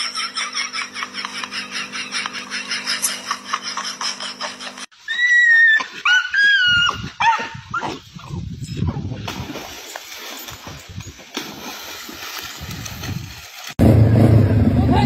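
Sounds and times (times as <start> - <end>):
dogs yelping and whining: 2.4 - 9.0.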